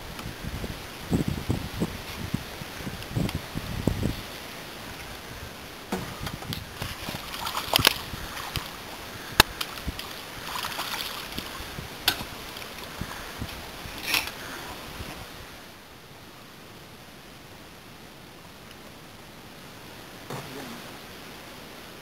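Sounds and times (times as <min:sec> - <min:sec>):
water splashing: 0:04.0 - 0:15.3
fishing gear clicks and knocks: 0:06.0 - 0:08.7, 0:13.5 - 0:14.4.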